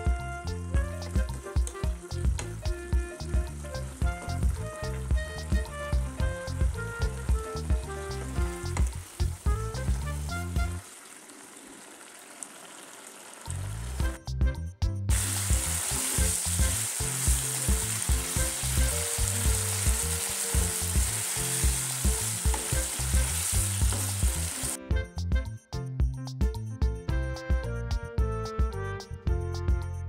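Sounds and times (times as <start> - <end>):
food sizzling in a wok: 1.9 - 14.0, 15.1 - 24.8.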